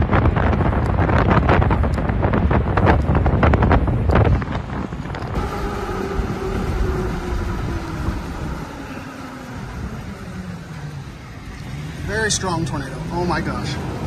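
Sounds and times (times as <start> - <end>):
wind buffeting microphone: 0.0 - 14.0
faint falling tone: 5.2 - 11.6.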